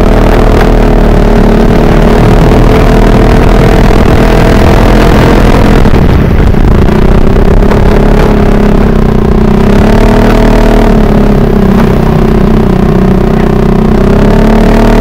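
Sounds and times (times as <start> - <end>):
scooter engine running: 0.0 - 15.0
wind rumble on microphone: 0.0 - 15.0.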